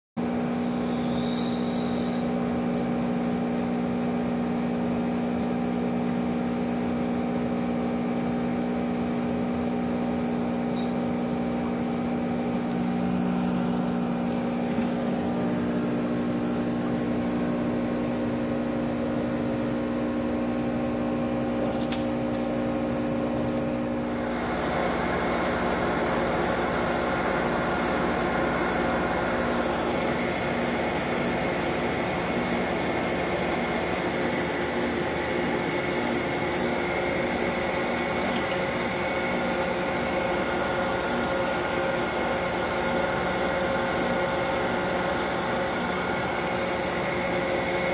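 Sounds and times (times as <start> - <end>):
aquarium pump hum: 0.2 - 47.9.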